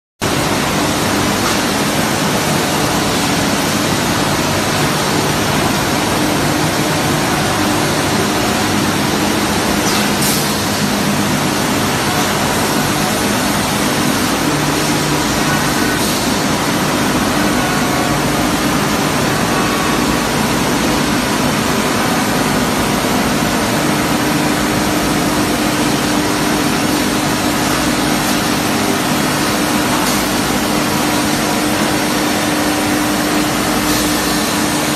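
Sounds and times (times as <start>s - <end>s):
machinery noise: 0.2s - 34.9s.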